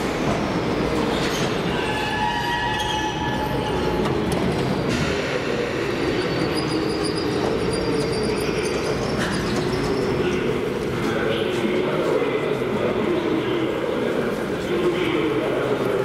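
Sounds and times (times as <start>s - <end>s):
train and station rumble: 0.0s - 16.0s.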